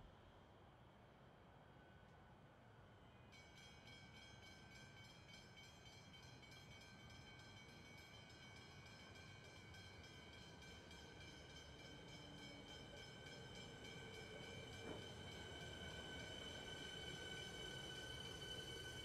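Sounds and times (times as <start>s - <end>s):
electric train approaching: 6.8s - 19.0s.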